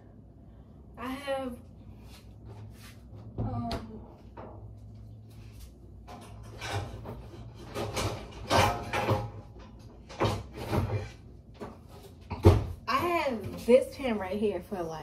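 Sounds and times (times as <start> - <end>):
pans clattering: 6.1 - 11.1.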